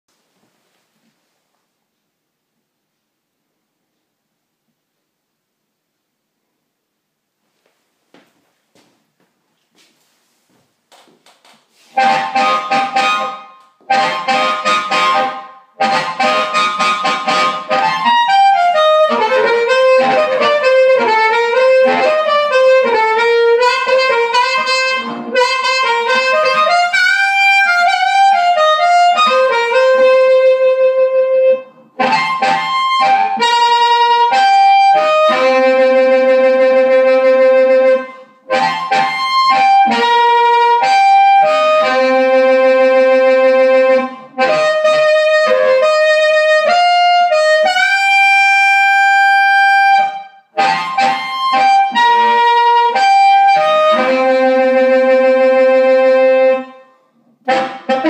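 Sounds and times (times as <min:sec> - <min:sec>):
amplified blues harmonica: 0:11.8 - 0:58.0.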